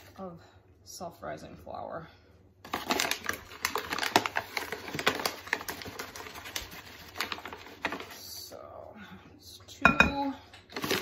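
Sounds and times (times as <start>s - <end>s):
paper bag crinkling: 2.6s - 8.2s, 10.7s - 11.0s.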